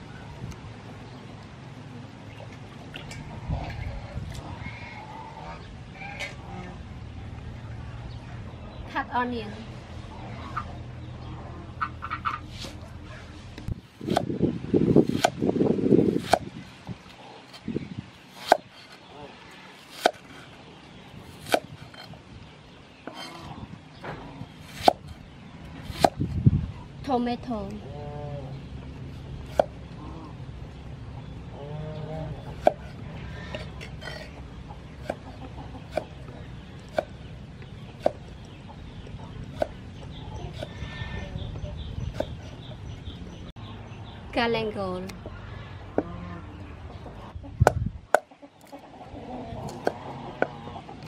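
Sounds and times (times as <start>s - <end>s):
cleaver chopping on wooden board: 14.0s - 14.3s, 15.1s - 15.4s, 16.2s - 16.5s, 20.0s - 20.2s, 21.4s - 21.7s, 24.7s - 25.1s, 25.9s - 26.2s, 32.6s - 32.9s.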